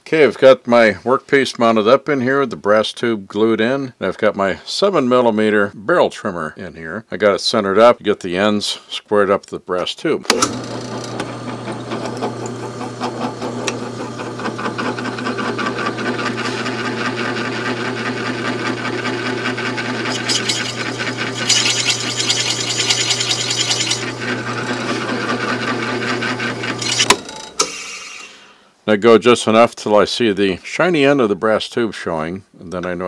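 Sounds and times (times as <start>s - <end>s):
cutter scraping wood: 10.3s - 28.4s
drill press motor hum: 10.3s - 28.4s.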